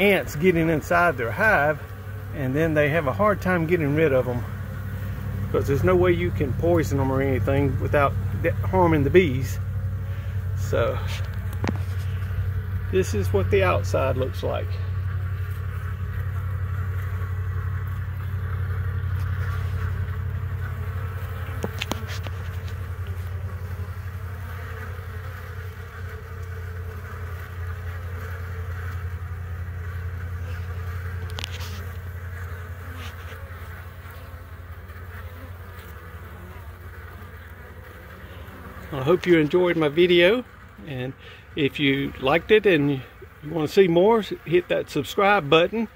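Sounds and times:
bees buzzing: 0:00.0 - 0:45.9
continuous low hum: 0:00.0 - 0:45.9.

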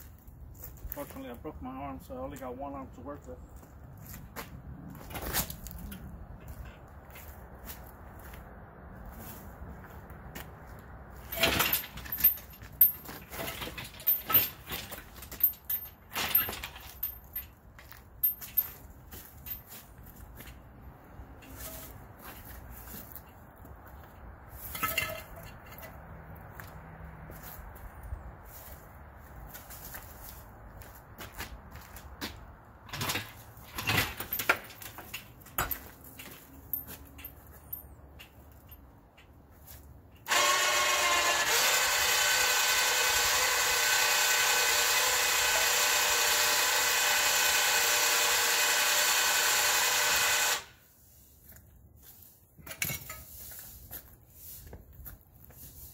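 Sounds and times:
engine hoist rattling on casters: 0:11.1 - 0:22.4, 0:24.6 - 0:26.2, 0:32.8 - 0:50.8.

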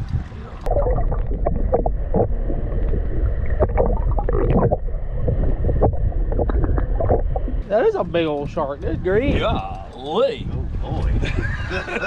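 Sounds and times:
water sloshing around hull: 0:00.0 - 0:08.8
wind rumbling on microphone: 0:00.0 - 0:12.0.

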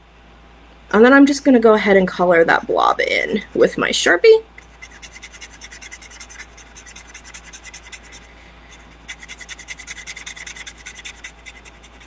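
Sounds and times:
marker scribbling on paper: 0:04.6 - 0:12.0.

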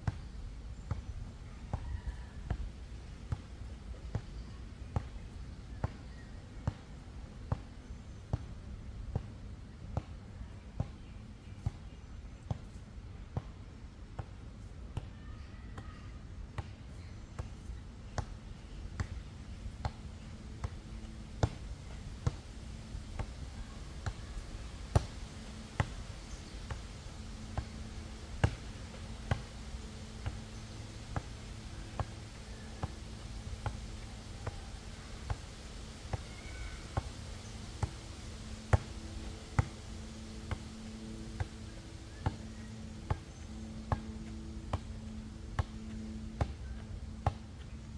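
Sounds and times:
faint low drone: 0:15.5 - 0:47.9.

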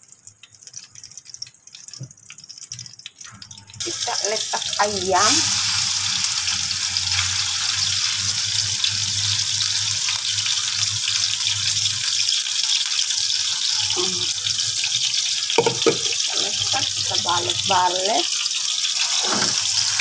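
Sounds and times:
chicken frying in hot oil: 0:00.0 - 0:20.0.

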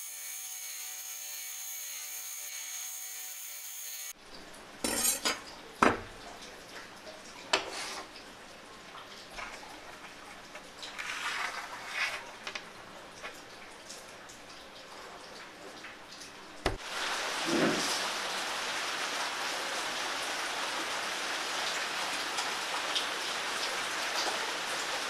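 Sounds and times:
rustle: 0:09.4 - 0:12.6, 0:16.8 - 0:25.0.

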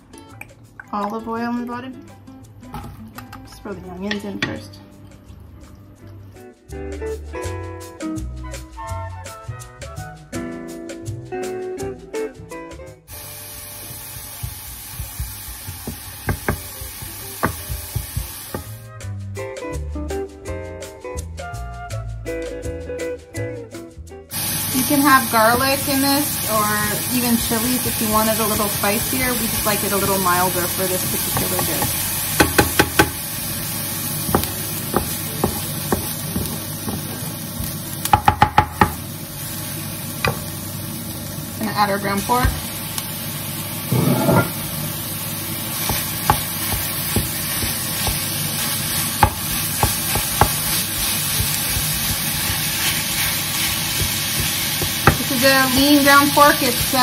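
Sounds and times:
onion sizzling in oil: 0:13.1 - 0:19.0, 0:24.3 - 0:57.0
wooden spoon knocking pan: 0:14.2 - 0:18.8, 0:31.0 - 0:33.2, 0:34.2 - 0:39.0, 0:49.2 - 0:52.6, 0:53.9 - 0:57.0.

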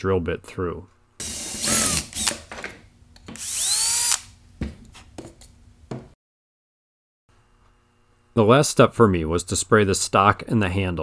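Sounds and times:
cordless drill boring wood: 0:01.2 - 0:02.5, 0:03.3 - 0:04.3.

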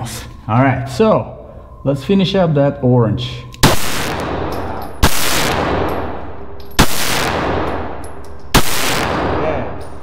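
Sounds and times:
pistol shots echoing: 0:03.6 - 0:10.0.

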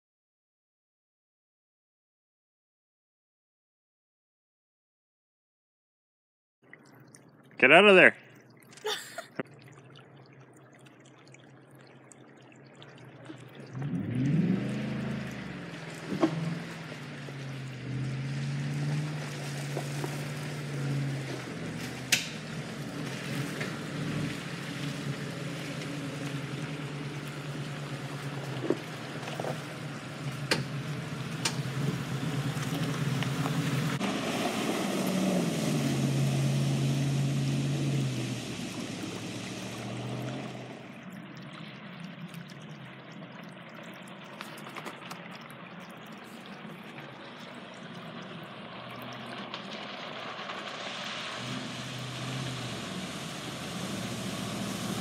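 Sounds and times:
pickup truck engine running: 0:13.8 - 0:40.8
truck splashing through puddles: 0:13.8 - 0:41.0, 0:46.6 - 0:55.0.

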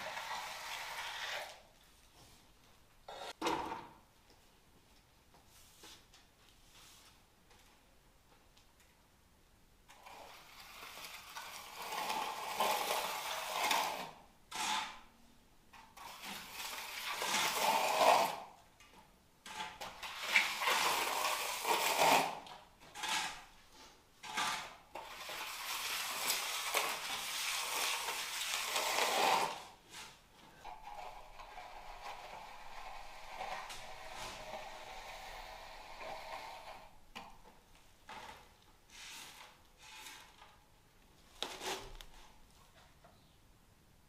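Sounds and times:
float scraping wet concrete: 0:00.0 - 0:01.6, 0:10.0 - 0:15.0, 0:16.0 - 0:18.4, 0:19.5 - 0:37.0.

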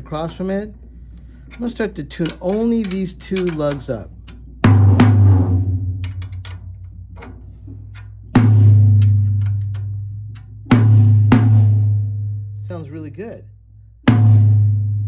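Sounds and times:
tom-tom drum hits: 0:04.6 - 0:06.1, 0:08.4 - 0:09.2, 0:10.7 - 0:12.1, 0:14.1 - 0:15.0.

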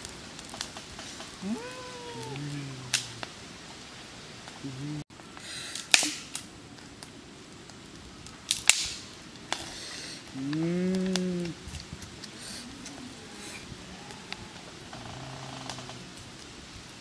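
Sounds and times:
wood fire crackling and popping: 0:00.0 - 0:17.0.

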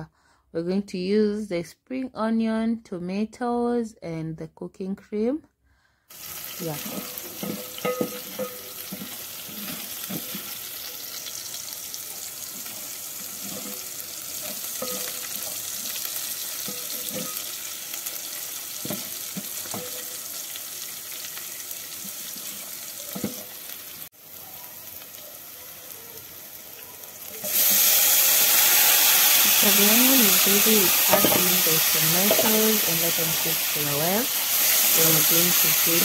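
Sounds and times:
onions sizzling in hot oil: 0:06.1 - 0:36.0
wooden spoon scraping a pot: 0:06.3 - 0:11.3, 0:12.4 - 0:17.8.

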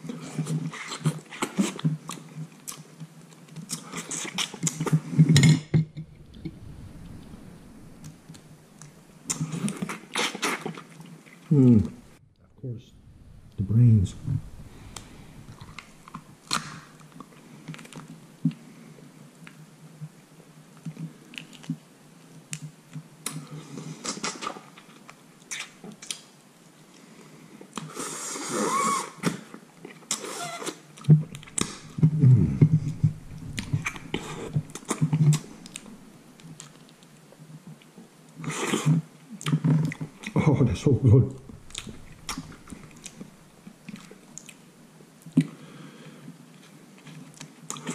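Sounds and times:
man chewing and sucking meat: 0:00.2 - 0:05.2.

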